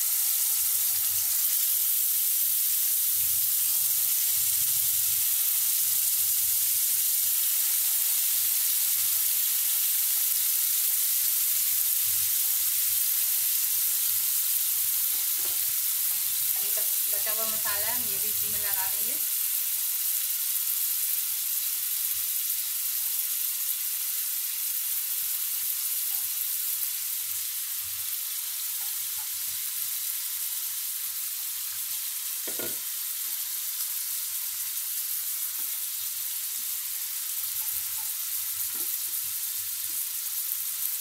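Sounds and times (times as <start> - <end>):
chicken sizzling in a frying pan: 0.0 - 41.0
brief knock: 32.5 - 32.8.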